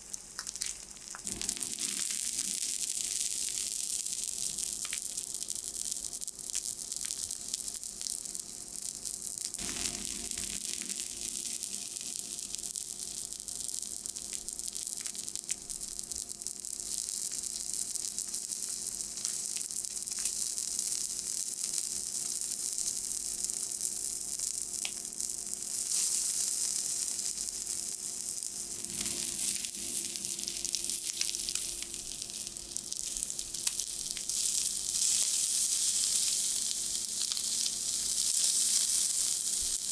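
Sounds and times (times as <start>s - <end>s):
fish sizzling on a griddle: 0.0s - 39.9s.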